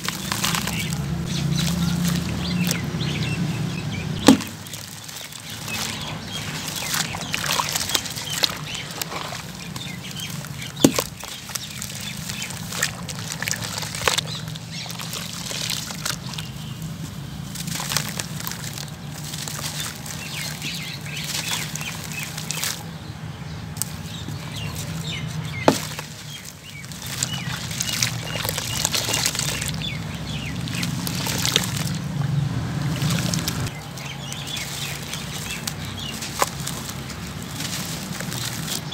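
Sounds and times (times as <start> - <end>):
chunks snapping: 0.0 - 23.0, 23.7 - 38.9
gritty crunching of cement lumps: 0.0 - 38.9
water sloshing and splashing: 0.0 - 38.9.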